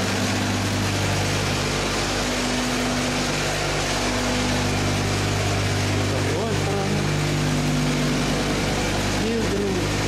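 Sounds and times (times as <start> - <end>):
machine humming: 0.0 - 10.0.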